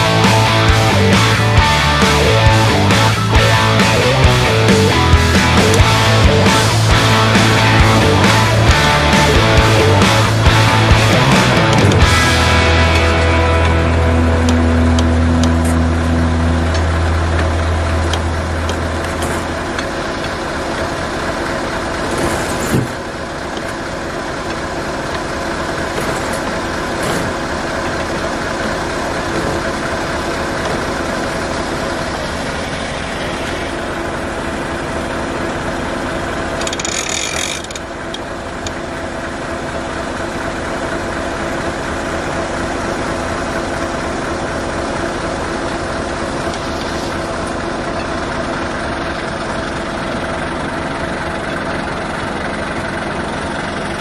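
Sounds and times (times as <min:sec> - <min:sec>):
truck diesel engine idling: 0:00.0 - 0:54.0
winch ratchet clicks: 0:36.6 - 0:38.8.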